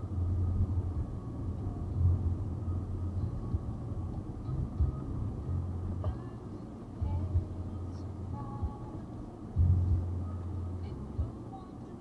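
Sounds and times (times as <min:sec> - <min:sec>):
deep hum: 0:00.0 - 0:06.4, 0:09.6 - 0:11.4
car cabin rumble: 0:00.0 - 0:12.0.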